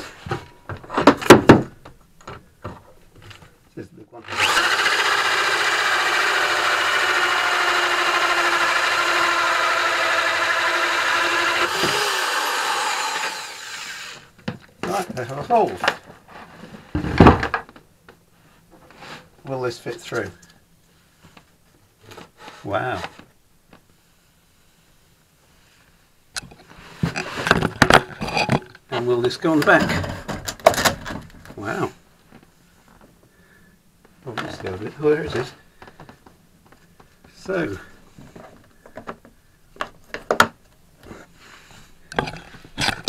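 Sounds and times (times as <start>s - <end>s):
electric drill cutting wood: 4.2s - 14.3s.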